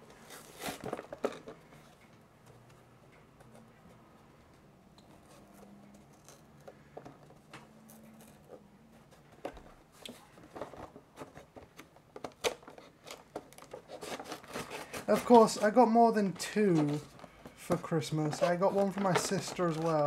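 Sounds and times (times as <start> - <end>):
packaging being cut and pried open: 0.2 - 1.5, 11.7 - 15.7, 16.7 - 20.0.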